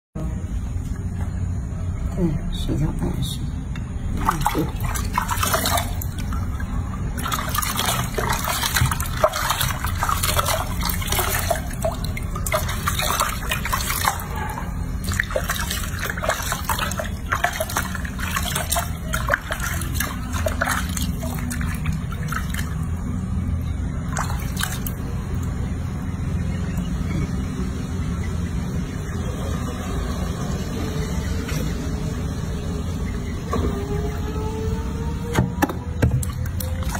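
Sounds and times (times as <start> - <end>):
steady low hum: 0.2 - 36.9
water splashing in a sink: 4.1 - 25.7, 35.6 - 36.9.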